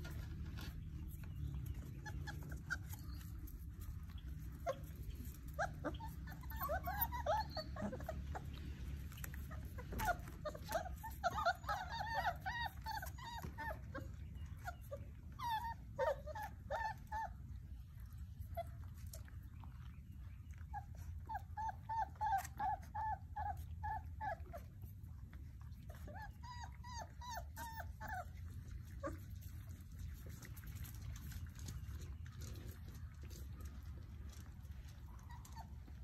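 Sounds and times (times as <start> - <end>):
puppies whimpering and yipping: 0.0 - 36.0.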